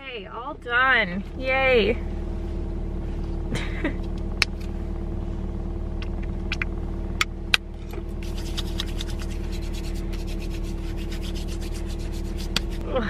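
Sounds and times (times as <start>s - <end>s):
car engine idling: 0.0s - 13.0s
hands rubbing: 8.1s - 12.8s.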